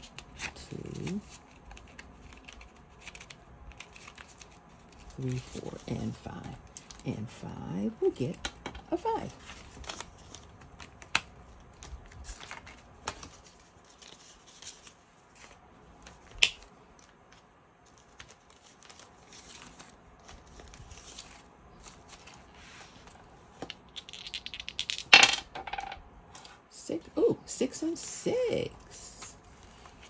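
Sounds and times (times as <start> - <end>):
banknotes rustling: 0.0 - 8.3, 8.9 - 26.0
dice rattling on a tabletop: 23.6 - 26.0.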